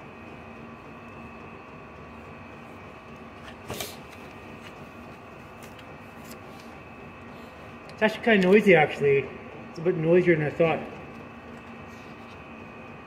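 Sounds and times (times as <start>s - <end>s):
air heater fan hum: 0.0s - 13.0s.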